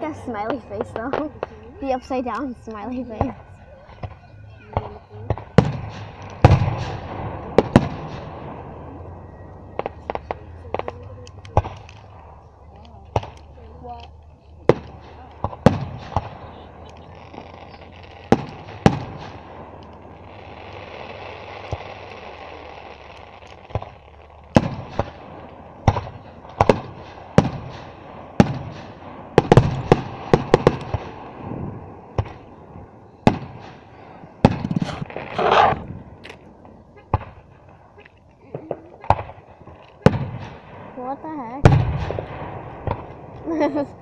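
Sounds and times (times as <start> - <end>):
firework shells bursting: 4.8 - 8.7, 9.8 - 32.6, 33.2 - 41.0.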